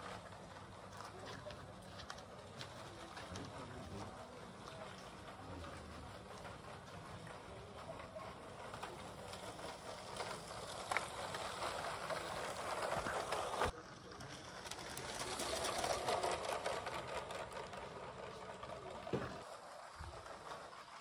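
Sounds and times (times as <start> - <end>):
toy train wheels rattling: 2.3 - 21.0
toy train motor whirring: 6.0 - 21.0.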